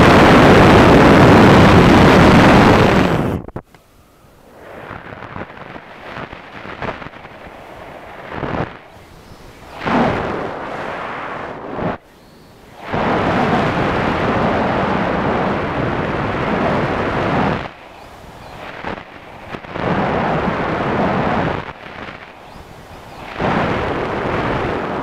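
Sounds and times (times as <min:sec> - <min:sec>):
wind buffeting microphone: 0:00.0 - 0:03.7, 0:04.4 - 0:25.0.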